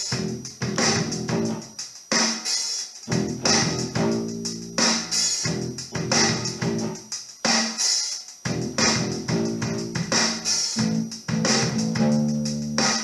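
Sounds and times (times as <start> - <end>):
rock music recording: 0.0 - 13.0
electric bass guitar: 0.1 - 1.6, 3.1 - 7.0, 8.5 - 13.0.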